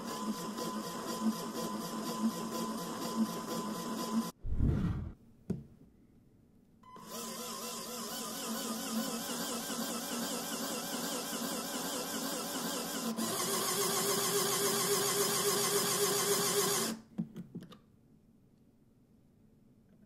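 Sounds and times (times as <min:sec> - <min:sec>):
small electric motor whirring: 0:07.0 - 0:17.0.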